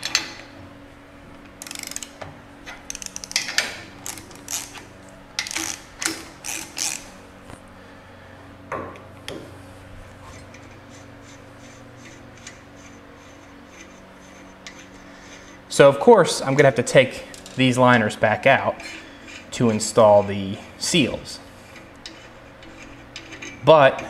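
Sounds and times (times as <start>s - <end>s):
faint steady hum: 0.0s - 24.0s
ratchet wrench clicking: 1.6s - 2.2s, 2.9s - 4.8s, 5.4s - 7.1s.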